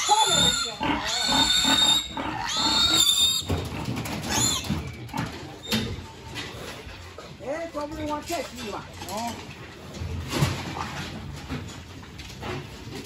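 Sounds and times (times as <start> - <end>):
piglet squealing: 0.0 - 3.5, 4.2 - 5.0.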